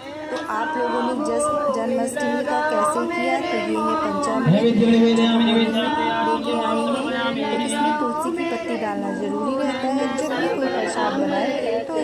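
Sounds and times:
group singing without instruments: 0.0 - 12.0.

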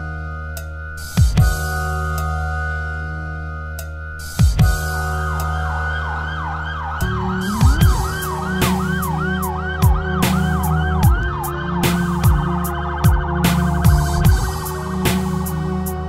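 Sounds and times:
deep held bass: 0.0 - 16.0
heavy kick drums: 1.2 - 1.7, 4.4 - 5.0, 7.0 - 16.0
snare and hi-hat hits: 4.2 - 5.5, 7.4 - 16.0
siren-like synth wail: 5.0 - 16.0.

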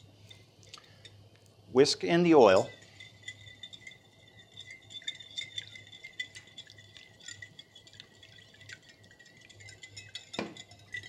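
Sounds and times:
whisk clinking against bowl: 2.2 - 11.0.

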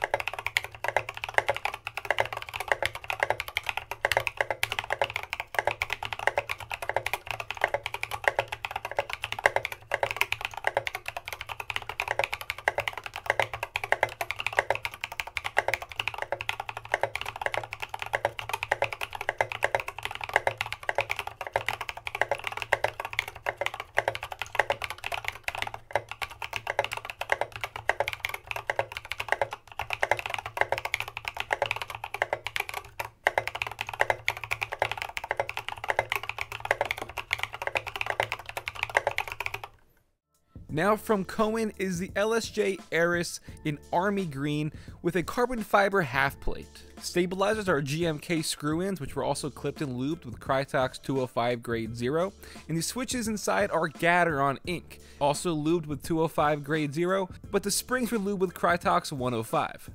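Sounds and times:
mechanical keyboard typing: 0.0 - 39.8.

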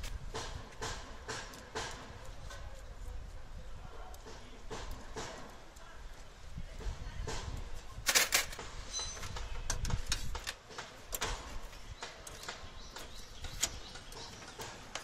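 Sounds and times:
rods tapping sheet metal: 0.0 - 2.9, 4.0 - 6.0, 6.7 - 15.0
metallic clicks and knocks: 8.0 - 15.0.

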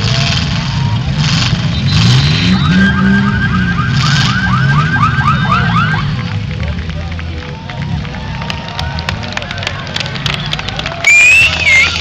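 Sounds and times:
car engines revving: 0.0 - 12.0
electronic warble: 2.2 - 6.1.

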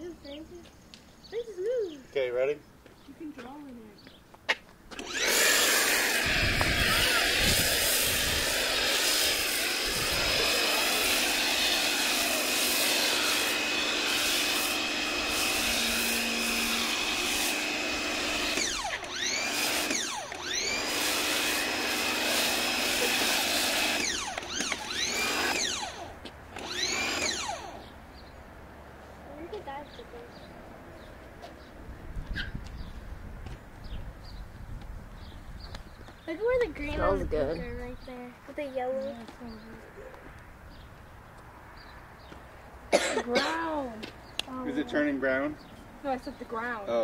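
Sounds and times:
pressure washer motor whine: 5.0 - 27.9
pressure washer spray hiss: 5.4 - 24.2.

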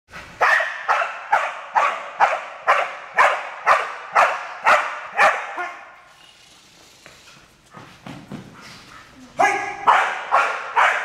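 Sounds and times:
dog barking: 0.4 - 5.9, 9.4 - 11.0.

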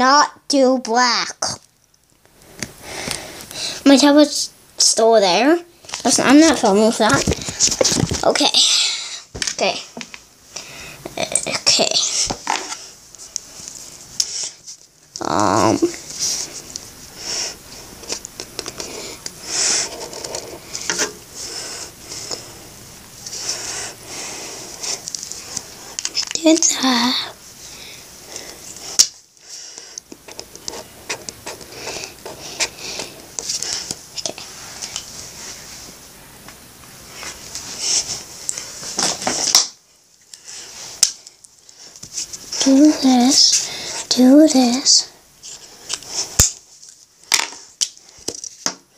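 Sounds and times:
felt-tip marker scratching paper: 30.3 - 33.1.

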